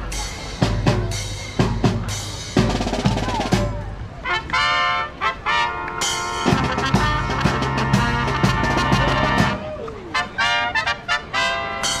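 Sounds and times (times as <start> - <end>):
snare and bass drums: 0.0 - 4.6, 5.9 - 9.6
horns holding long notes: 4.2 - 12.0.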